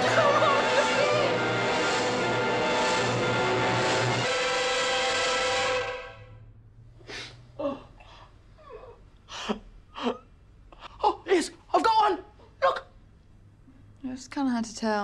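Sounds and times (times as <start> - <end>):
music sting: 0.0 - 6.2.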